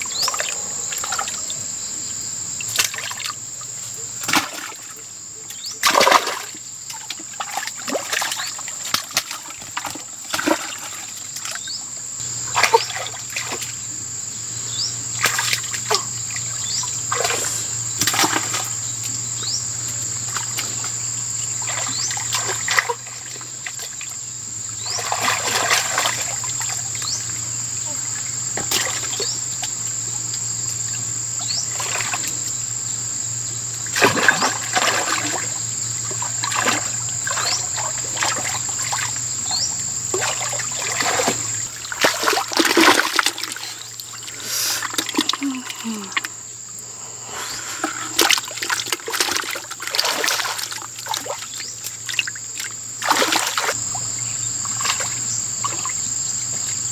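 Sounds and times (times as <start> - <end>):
hands splashing in muddy water: 5.8 - 11.6, 12.4 - 13.8, 15.1 - 19.2, 20.2 - 24.0, 24.8 - 27.0, 33.9 - 46.3, 47.4 - 53.8.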